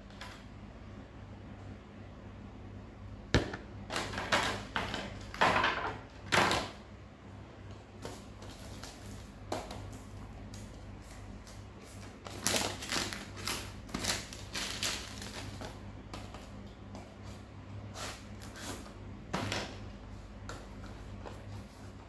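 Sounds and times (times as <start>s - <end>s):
cellophane wrapper crinkling: 12.2s - 15.8s.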